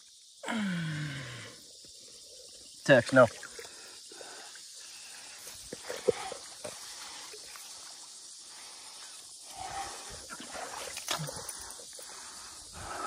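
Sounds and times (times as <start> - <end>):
river water sloshing at bank: 9.5 - 12.1.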